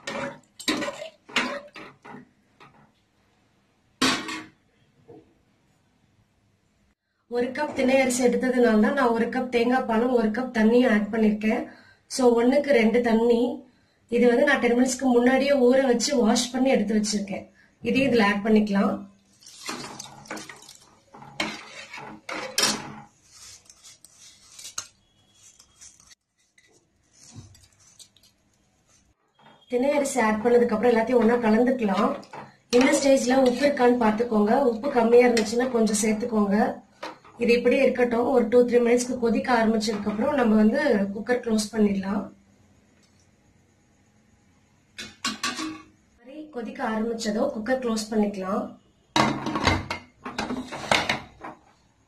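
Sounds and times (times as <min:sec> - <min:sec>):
metal spoon scraping a pot: 0:00.0 - 0:02.8, 0:19.5 - 0:29.7, 0:30.3 - 0:35.8, 0:50.4 - 0:51.4.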